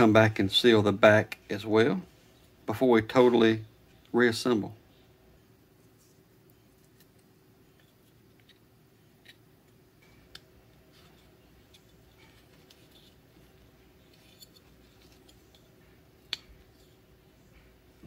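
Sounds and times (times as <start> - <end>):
pliers clicking and scratching: 14.0 - 16.9.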